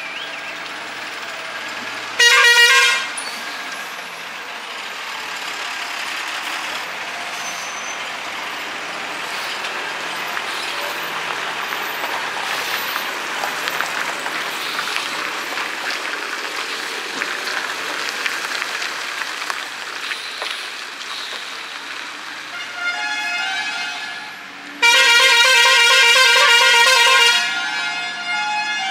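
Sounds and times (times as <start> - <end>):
tyres crackling on gritty road: 0.0 - 28.9.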